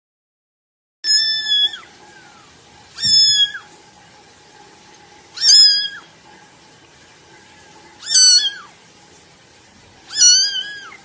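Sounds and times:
kitten meowing: 0:01.0 - 0:03.7, 0:05.4 - 0:06.1, 0:08.0 - 0:08.7, 0:10.1 - 0:11.0.

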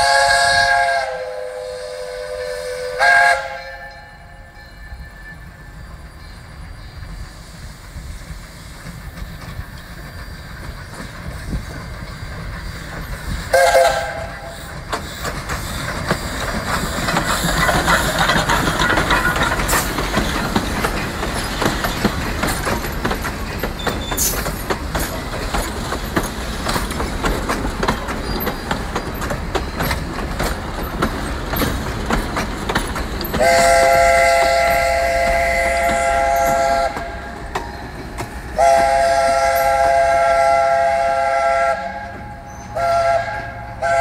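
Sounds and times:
steam whistle toot: 0:00.0 - 0:05.8, 0:13.5 - 0:14.7, 0:33.4 - 0:37.5, 0:38.4 - 0:44.0
steam locomotive passing: 0:00.0 - 0:44.0
wheels clicking on rail joints: 0:03.3 - 0:44.0.

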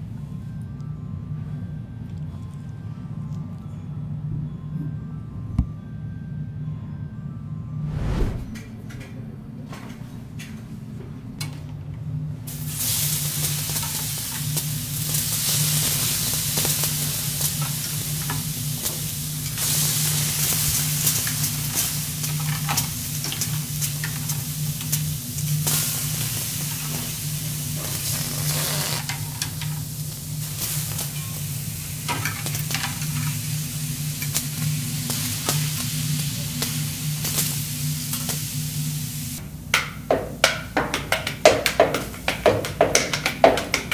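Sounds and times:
food sizzling on a griddle: 0:12.5 - 0:39.4.

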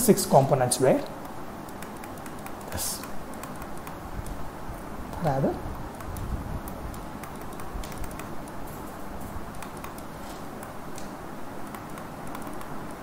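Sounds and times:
stylus tapping on tablet screen: 0:01.2 - 0:04.4.

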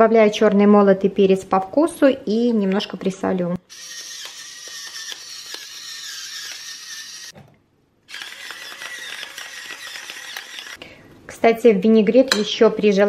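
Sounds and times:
pepper mill grinding: 0:03.7 - 0:07.3, 0:08.1 - 0:10.8
salt mill grinding: 0:03.7 - 0:07.3, 0:08.1 - 0:10.8.

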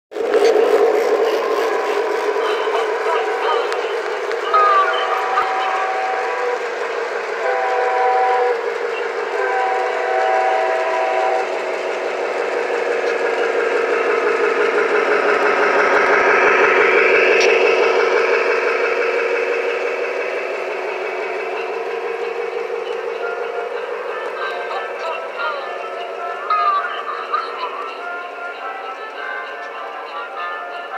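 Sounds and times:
train horn blasts: 0:04.5 - 0:06.6, 0:07.3 - 0:11.6.

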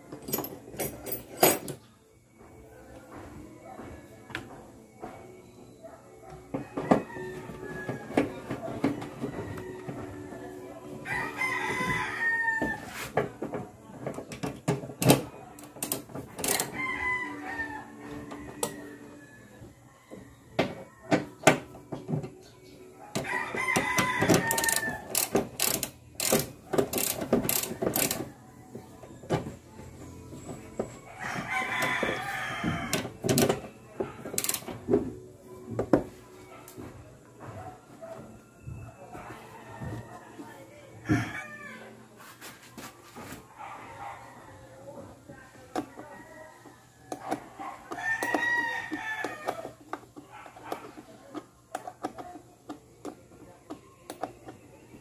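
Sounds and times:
rooster crowing: 0:06.6 - 0:13.1, 0:16.6 - 0:21.2, 0:23.1 - 0:25.2, 0:31.1 - 0:33.1, 0:38.6 - 0:42.0, 0:45.8 - 0:49.8.

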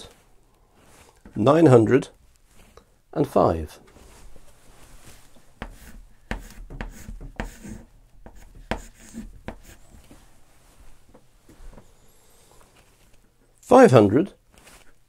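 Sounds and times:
chalk scraping: 0:05.6 - 0:10.2
chalk tapping on blackboard: 0:05.6 - 0:10.2.

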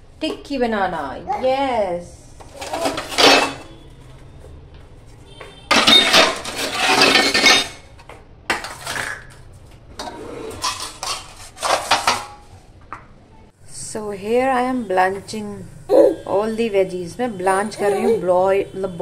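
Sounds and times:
steel plates and utensils clattering: 0:02.6 - 0:03.7, 0:05.7 - 0:07.9, 0:10.0 - 0:12.5.

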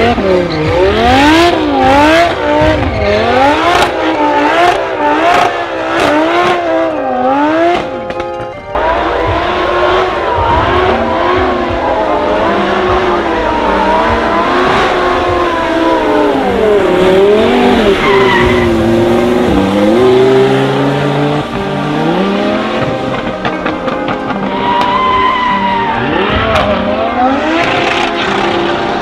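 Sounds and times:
car engine revving hard: 0:00.0 - 0:08.0, 0:08.8 - 0:23.9, 0:25.9 - 0:29.0
tyres squealing on wet tarmac: 0:08.8 - 0:20.6, 0:24.4 - 0:29.0.

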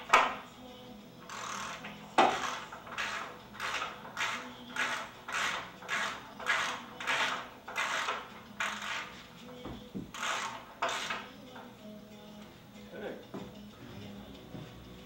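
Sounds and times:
ratchet wrench clicking: 0:01.3 - 0:09.2, 0:10.1 - 0:11.3.

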